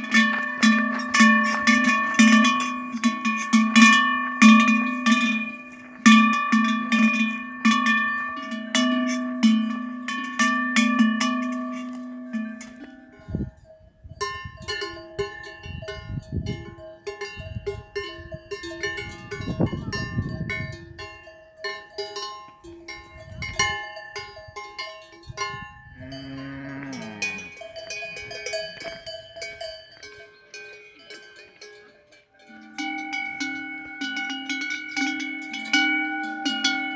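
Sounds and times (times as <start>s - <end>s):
cow bells clanging: 0.0s - 36.9s
cow mooing: 26.0s - 27.6s.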